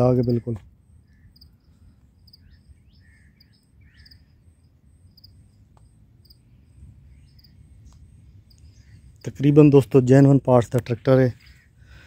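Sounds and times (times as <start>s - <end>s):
insects chirping: 0.0s - 9.8s
short bird calls: 0.2s - 4.5s, 6.3s - 9.2s, 11.2s - 12.0s.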